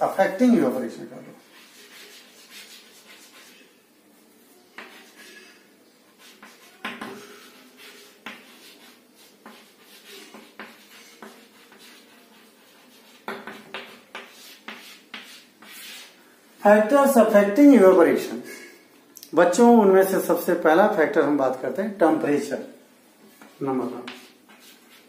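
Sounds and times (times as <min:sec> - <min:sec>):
chalk scratching on chalkboard: 0:01.4 - 0:03.8, 0:04.4 - 0:16.2, 0:23.2 - 0:25.0
chalk tapping on board: 0:04.8 - 0:05.2, 0:06.2 - 0:16.1, 0:23.3 - 0:25.0.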